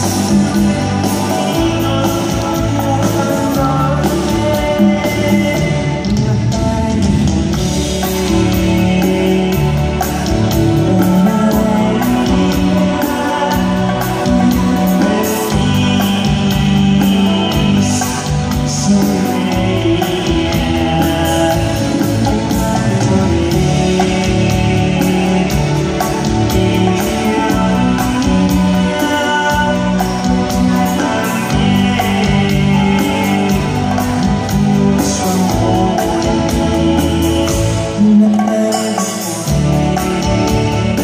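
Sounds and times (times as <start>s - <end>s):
live band playing: 0.0s - 41.0s
person singing: 0.0s - 41.0s.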